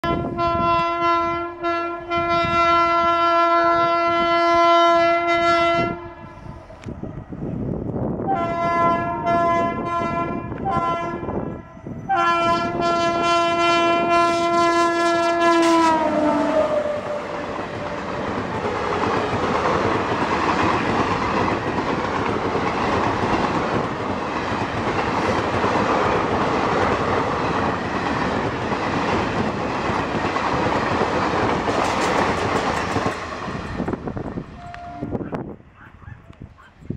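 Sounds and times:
locomotive horn blasts: 0.0 - 6.7, 8.3 - 18.8, 34.6 - 35.4
train wheels on rails: 11.4 - 35.5.

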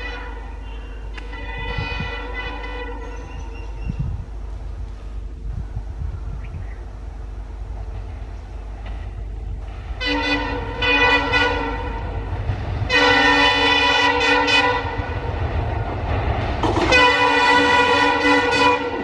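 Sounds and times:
locomotive horn blasts: 0.0 - 4.2, 10.0 - 15.2, 16.6 - 19.0
diesel engine rumble: 0.0 - 19.0.

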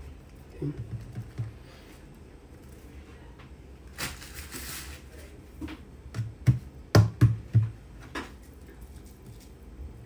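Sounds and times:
knocks and thuds on countertop: 0.6 - 1.6, 5.6 - 8.3.

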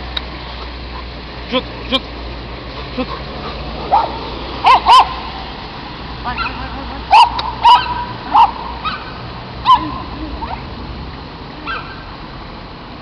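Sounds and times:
dog barking: 3.4 - 5.3, 6.3 - 10.6, 11.6 - 12.0.

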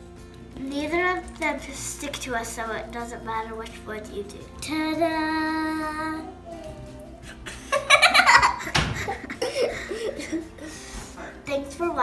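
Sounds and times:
girls laughing: 7.2 - 10.9.

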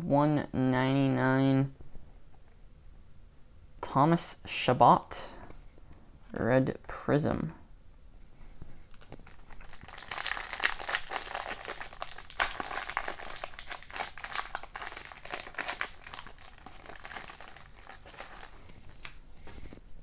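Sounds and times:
foil wrapper crinkling: 8.9 - 19.2.

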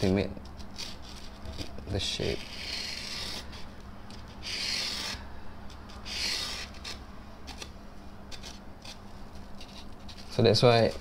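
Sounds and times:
pencil scratching on foam: 2.2 - 3.7, 4.4 - 5.2, 6.0 - 7.0.

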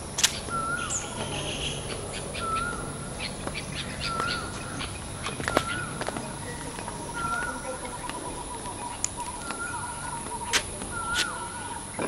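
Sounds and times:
high bird chirps: 0.0 - 12.0
sharp click: 0.2 - 0.4, 10.5 - 11.4
bird whistling short note: 10.9 - 11.6.

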